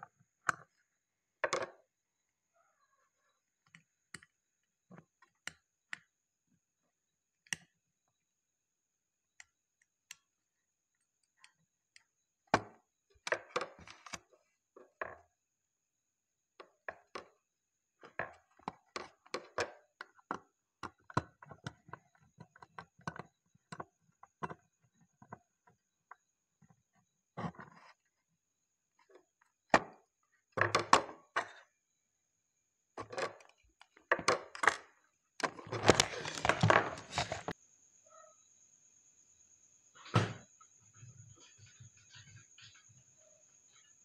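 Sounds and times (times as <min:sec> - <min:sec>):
small clicks and taps of wiring: 0:07.4 - 0:07.8.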